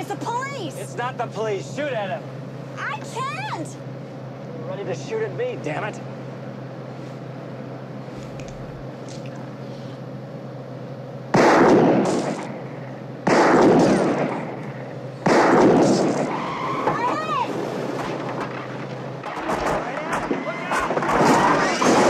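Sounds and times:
road noise: 0.0s - 22.0s
vehicle engine drone: 0.0s - 22.0s
revolver shots echoing: 15.2s - 16.4s.

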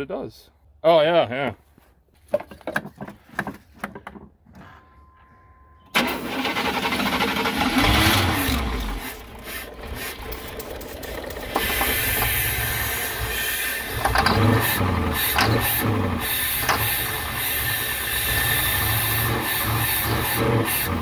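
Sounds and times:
engine cranking: 5.9s - 21.0s.

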